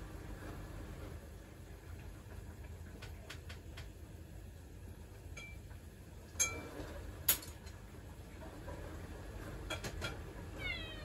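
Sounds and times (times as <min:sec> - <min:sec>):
dishes clinking: 0:05.3 - 0:05.6, 0:06.3 - 0:07.8, 0:09.6 - 0:10.3
cat meowing: 0:10.5 - 0:11.0.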